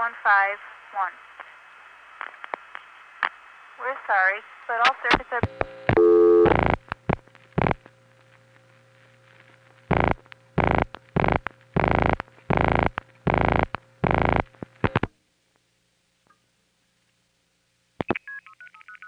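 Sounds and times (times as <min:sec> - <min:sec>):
faint telephone line hum: 0:00.0 - 0:15.6
rotary dial pulses buzzing: 0:05.5 - 0:07.8, 0:09.9 - 0:15.1.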